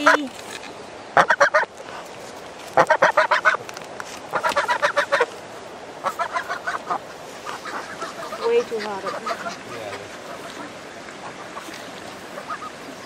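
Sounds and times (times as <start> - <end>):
goose honking: 1.2 - 1.7, 2.8 - 3.6, 4.3 - 5.3, 6.0 - 11.8, 12.4 - 12.8.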